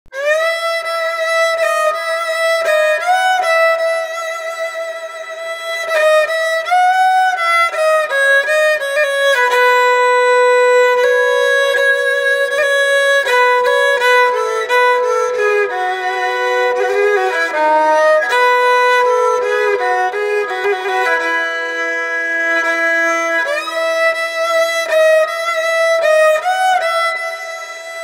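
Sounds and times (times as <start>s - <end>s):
bowed fiddle solo melody: 0.1s - 28.0s.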